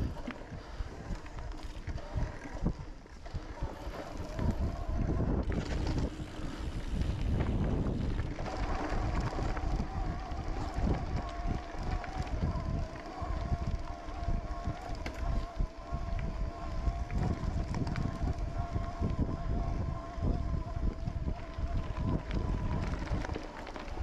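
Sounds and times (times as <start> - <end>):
steady whine: 0.0 - 24.0
wind buffeting microphone: 0.0 - 24.0.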